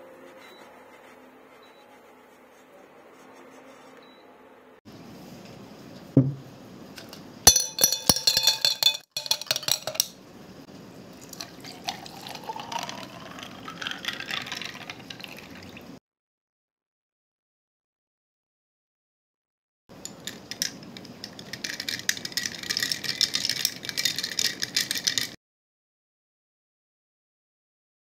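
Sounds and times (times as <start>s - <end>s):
dull knock: 6.2s - 6.4s
ice cubes clinking in glass: 7.5s - 10.1s, 11.3s - 15.6s, 20.0s - 25.4s
drink pouring over ice: 11.2s - 15.9s.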